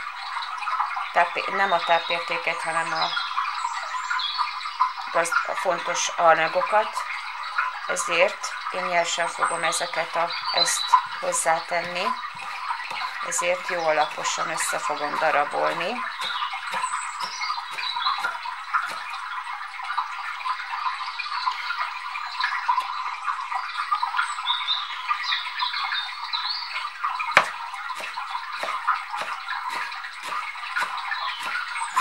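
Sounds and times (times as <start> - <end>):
knife chopping on wooden board: 11.8 - 19.1, 27.4 - 32.0.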